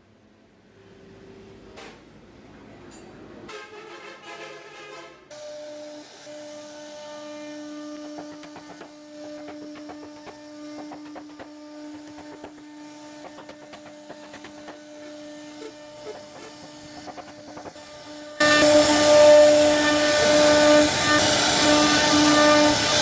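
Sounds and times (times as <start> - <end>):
router spindle high whine: 5.3 - 23.0
bit chipping wood clicks: 8.0 - 17.9.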